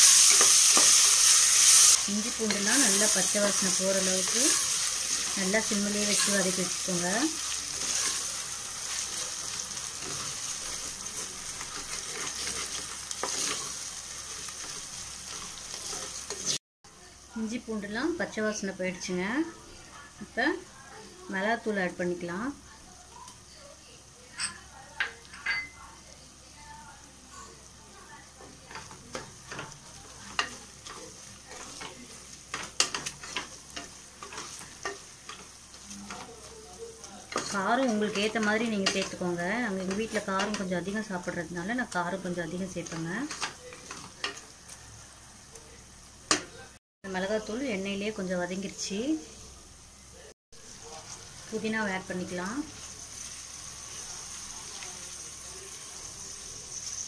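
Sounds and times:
food sizzling in oil: 0.0 - 57.0
spoon scraping pot: 8.9 - 16.6, 42.8 - 44.5
spatula scraping metal pot: 11.1 - 13.8.

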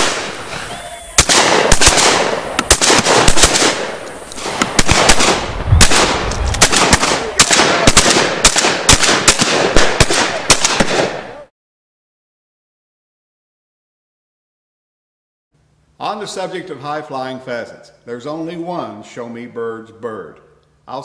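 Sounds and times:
shotgun shots echoing: 0.0 - 0.6, 1.2 - 11.4.

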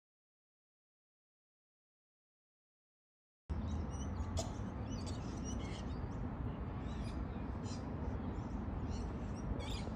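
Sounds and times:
birds chirping: 3.5 - 9.9.

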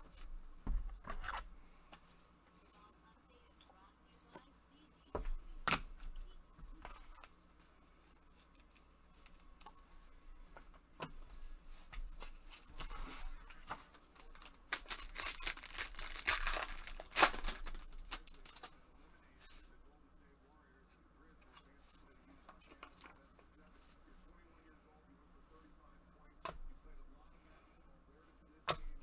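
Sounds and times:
foil crinkling and tearing: 14.2 - 18.7.

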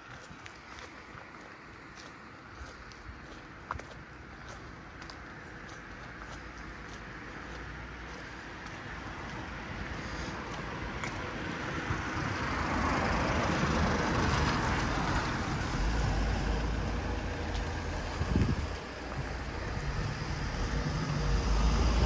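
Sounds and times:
vehicle passing on street: 0.0 - 22.0
low rumble: 15.2 - 22.0.

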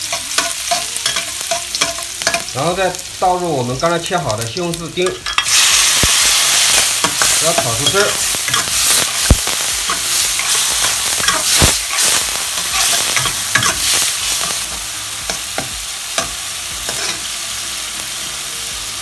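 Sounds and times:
food sizzling in a wok: 0.0 - 19.0
metal spatula scraping wok: 5.0 - 14.7, 16.2 - 17.3.

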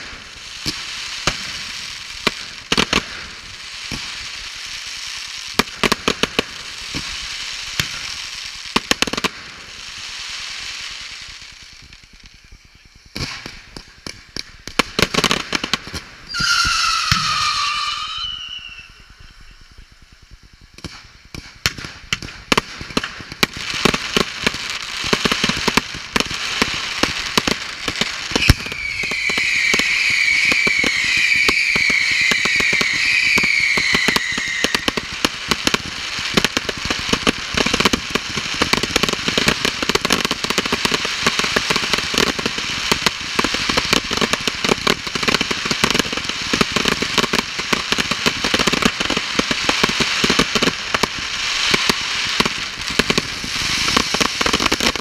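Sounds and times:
fireworks bangs and crackling: 0.0 - 55.0
falling firework whistle: 12.3 - 22.2, 27.0 - 36.6
shrill firework whistling: 16.2 - 21.1, 27.0 - 36.5, 49.4 - 55.0.

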